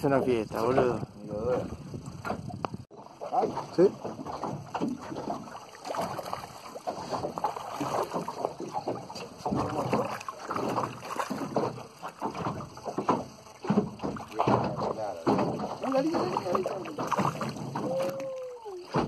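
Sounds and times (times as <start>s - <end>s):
wind buffeting microphone: 0.0s - 2.9s
water lapping against boat hull: 0.0s - 19.0s.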